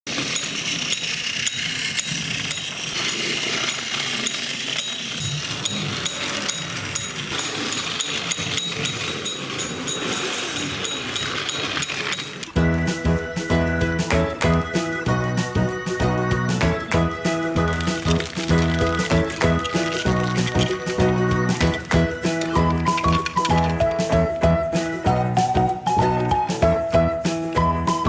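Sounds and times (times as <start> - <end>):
toy train motor whirring: 0.1 - 12.6, 14.6 - 24.4
small bell ringing: 0.2 - 12.5.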